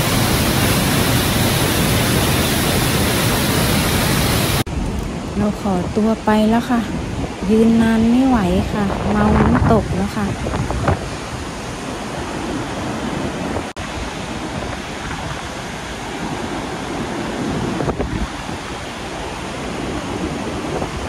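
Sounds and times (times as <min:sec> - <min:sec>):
waterfall crashing: 0:00.0 - 0:05.2
wind buffeting microphone: 0:00.0 - 0:21.0.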